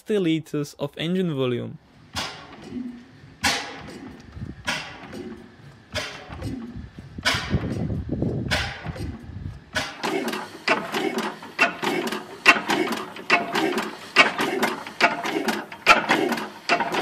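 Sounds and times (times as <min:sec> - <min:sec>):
low rumble: 0:01.8 - 0:09.8
oil engine clacking: 0:02.1 - 0:17.0.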